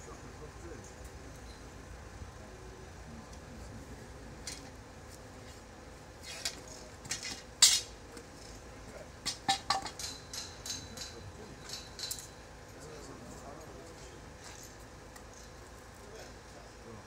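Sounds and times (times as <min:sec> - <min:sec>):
metal hand tools clinking: 0:09.7 - 0:12.4.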